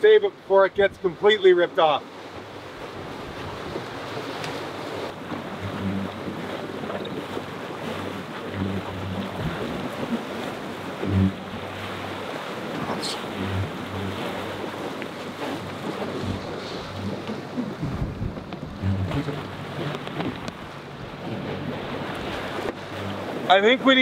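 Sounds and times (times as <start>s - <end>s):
wind and sea water rushing: 0.0s - 24.0s
wind buffeting microphone: 2.3s - 23.8s
loud thump: 17.8s - 20.5s.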